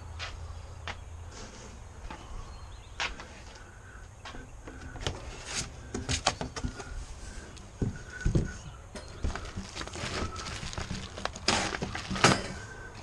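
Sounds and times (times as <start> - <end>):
cardboard flaps scraping and rustling: 9.3 - 12.5.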